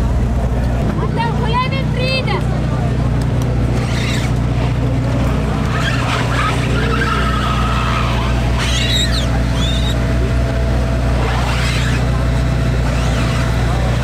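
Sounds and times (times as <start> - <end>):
car engine low rumble: 0.0 - 14.0
high squeals: 3.7 - 4.8, 5.6 - 10.1, 11.2 - 13.8.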